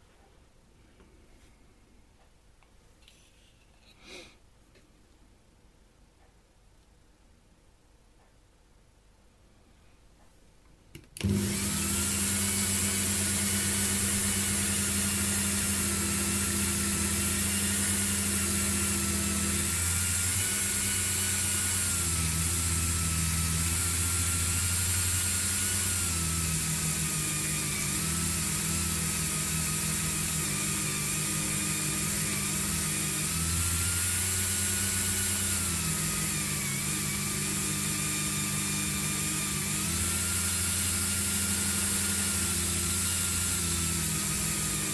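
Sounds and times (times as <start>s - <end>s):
rotary tool whining: 11.2s - 44.9s.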